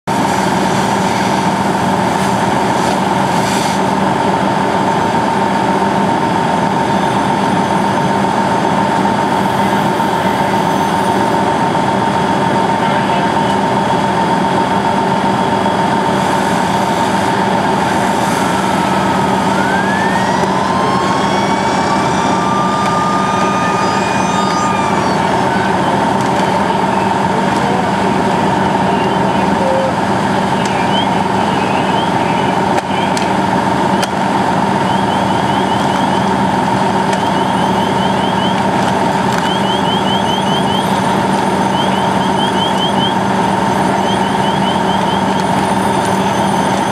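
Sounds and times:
fire engine diesel engine and pump: 0.0 - 46.9.

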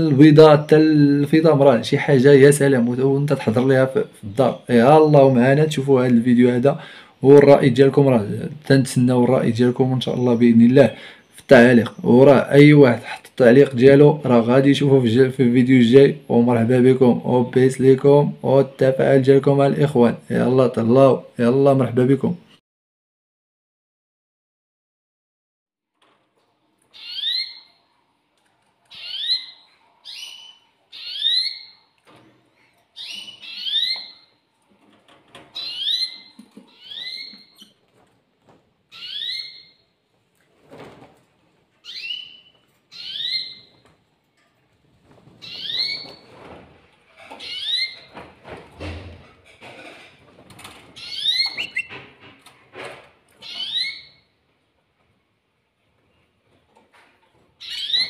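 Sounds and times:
canary chirping: 26.9 - 28.1, 28.7 - 34.5, 35.3 - 37.8, 38.9 - 40.0, 41.8 - 43.8, 45.4 - 46.3, 47.2 - 48.2, 50.9 - 52.5, 53.3 - 54.4, 57.6 - 58.0
soft rustling: 43.8 - 47.4.

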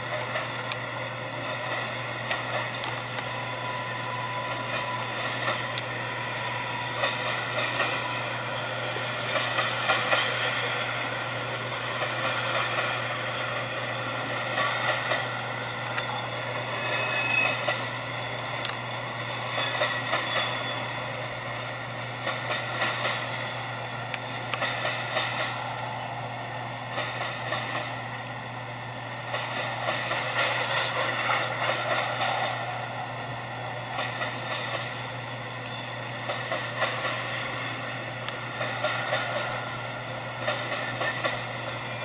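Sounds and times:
train cars rolling on rails: 0.0 - 42.0
high wheel squeals: 3.2 - 9.0, 11.4 - 13.6, 15.5 - 21.8, 40.8 - 42.0.

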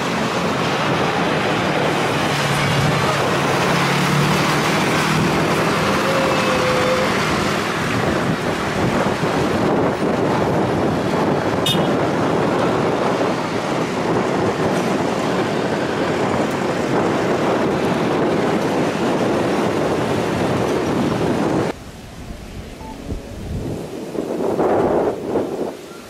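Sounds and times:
jet engines roaring: 0.0 - 11.6
wind on microphone: 0.0 - 26.0.

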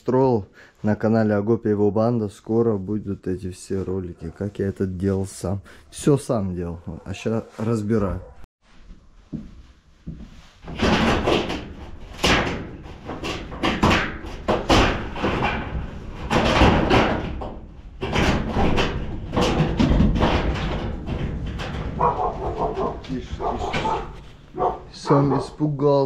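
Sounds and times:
bangs and slams of metal panels: 10.6 - 24.9.

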